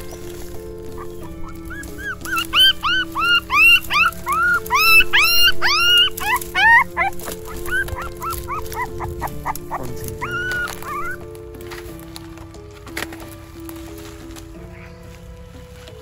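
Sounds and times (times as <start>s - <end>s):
puppy whimpering and yelping: 0.0s - 11.3s
music of held notes: 0.0s - 16.0s.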